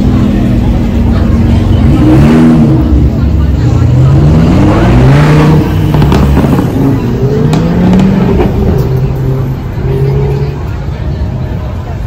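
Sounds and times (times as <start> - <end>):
exhaust cracks: 5.4 - 9.8.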